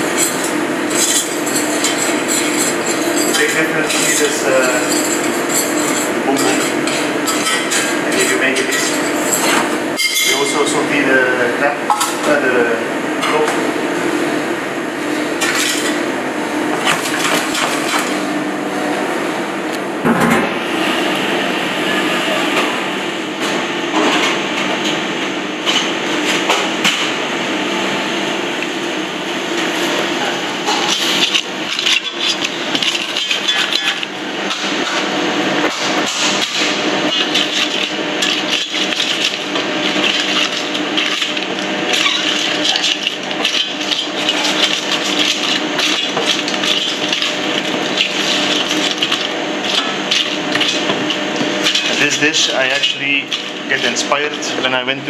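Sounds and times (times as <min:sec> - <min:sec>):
wooden utensil crushing shells in pan: 0:36.6 - 0:52.0.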